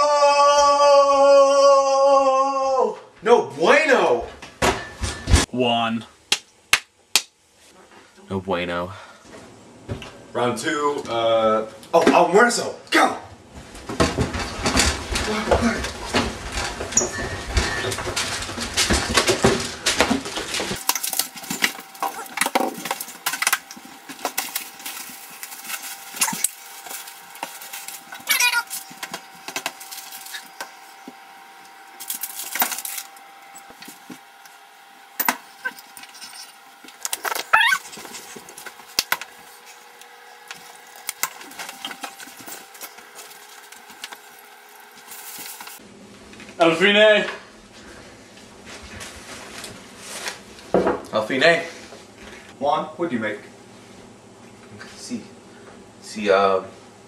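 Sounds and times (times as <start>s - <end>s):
utensils and dishes clattering: 14.0s - 30.6s, 35.2s - 38.4s.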